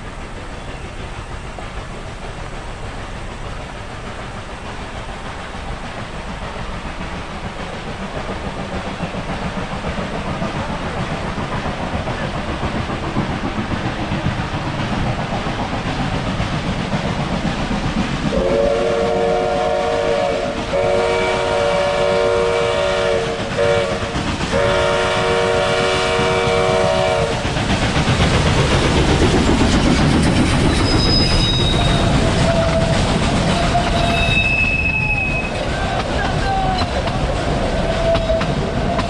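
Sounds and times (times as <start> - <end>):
train wheels rumbling and clattering: 0.0 - 39.0
steam locomotive chime whistle: 18.3 - 27.4, 30.8 - 36.9.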